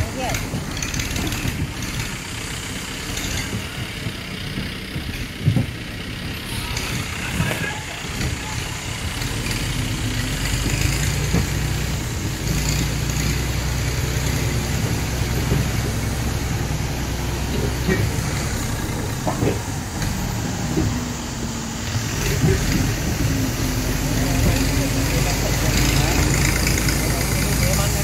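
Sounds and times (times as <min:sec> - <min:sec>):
jeep engine running: 0:00.0 - 0:28.0
vehicle knocking over ruts: 0:00.0 - 0:28.0.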